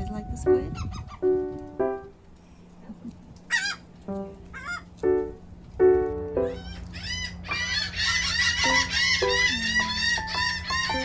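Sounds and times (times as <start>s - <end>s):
gulls and terns calling: 0.8s - 1.4s, 3.5s - 3.9s, 4.5s - 5.0s, 6.4s - 11.0s.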